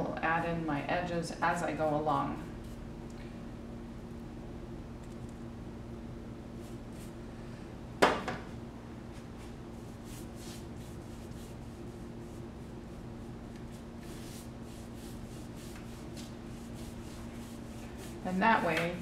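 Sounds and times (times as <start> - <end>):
low room hum: 0.0 - 19.0
scratchy paintbrush strokes: 9.4 - 18.4.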